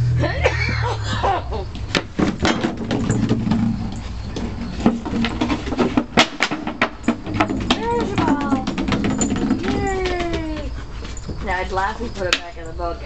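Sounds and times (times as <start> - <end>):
plastic bucket knocking on deck: 4.8 - 10.6.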